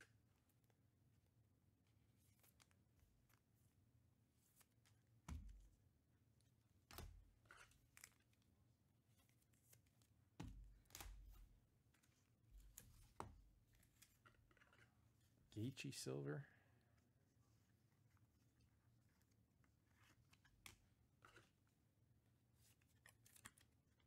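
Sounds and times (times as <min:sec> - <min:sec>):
trading cards tapping and rustling: 0:09.2 - 0:14.9.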